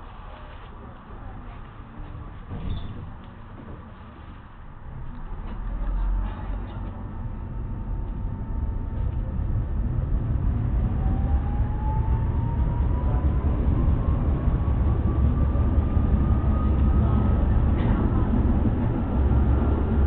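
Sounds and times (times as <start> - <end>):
wheels rumbling on rail: 0.0 - 20.0
tram motor whine rising: 4.7 - 20.0.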